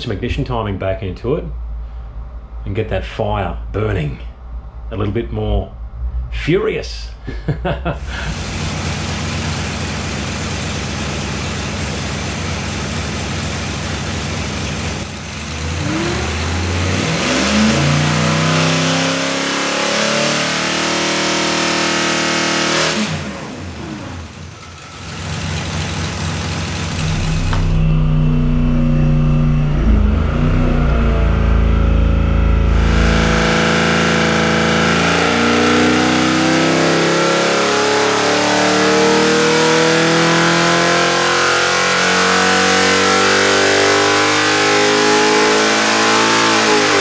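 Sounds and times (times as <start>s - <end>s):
engine revving on dyno: 7.8s - 47.0s.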